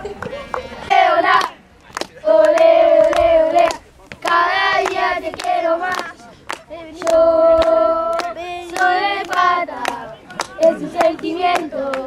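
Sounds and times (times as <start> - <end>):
hands clapping: 1.4 - 12.0
boys chanting in unison: 2.2 - 12.0.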